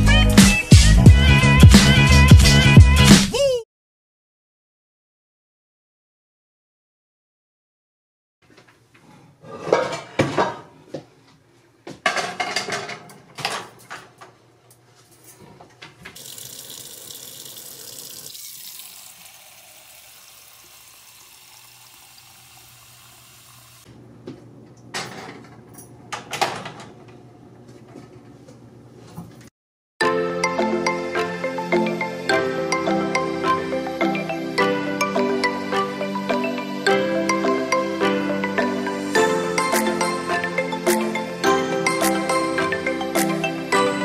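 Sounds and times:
dishes and pans clattering: 9.0 - 10.8, 12.0 - 14.1
tap running into sink: 16.2 - 23.7.

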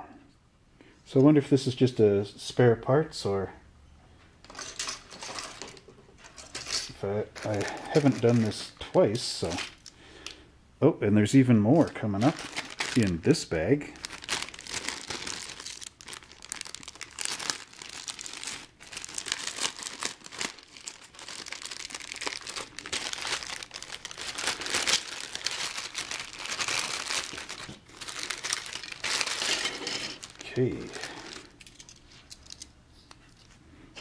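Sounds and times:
plastic bag crinkling: 6.4 - 10.0, 11.8 - 32.7.

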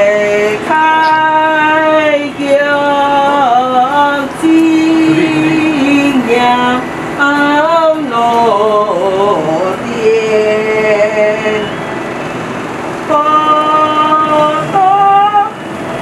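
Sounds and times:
person singing slow melody: 0.0 - 11.8.

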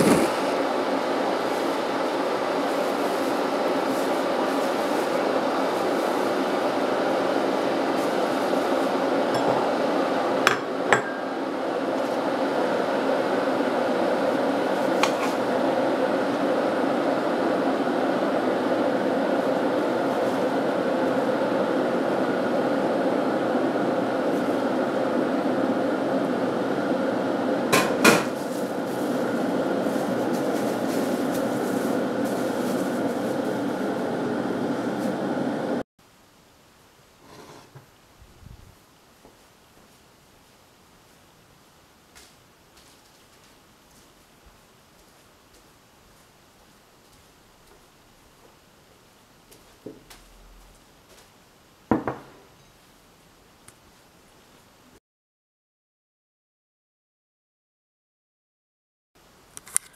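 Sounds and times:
machine hum: 0.0 - 35.8.

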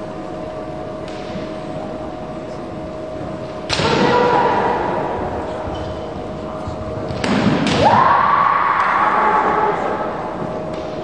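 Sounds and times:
loud strike or stamp: 3.7 - 4.5.

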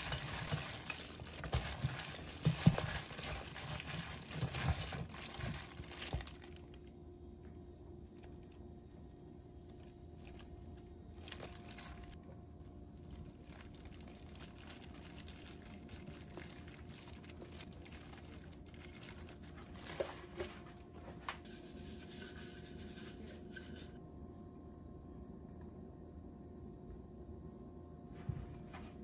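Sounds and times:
plastic glove crinkling: 0.0 - 6.9, 10.1 - 12.2, 12.9 - 20.9.

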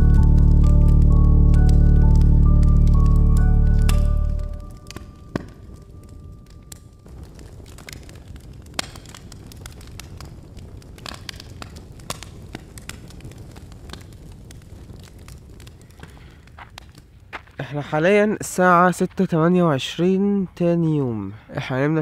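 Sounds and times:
low steady rumble: 0.0 - 7.8
irregular crackles and pops: 0.0 - 21.2.

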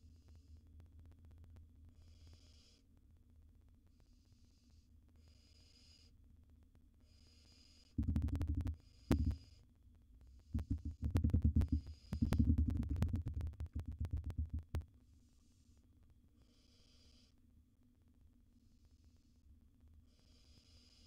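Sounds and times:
rapid scratching and knocking: 8.0 - 9.4, 10.6 - 14.8.

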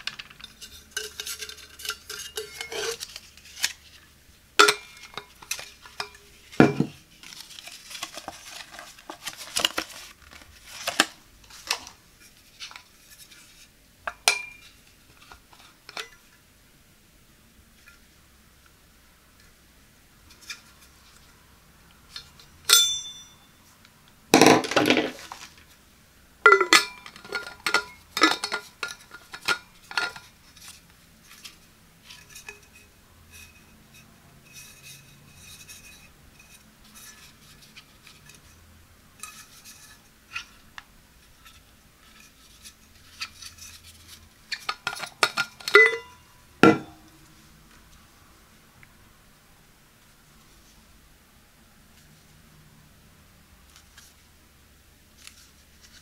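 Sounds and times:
brief metallic ring: 22.7 - 23.6.

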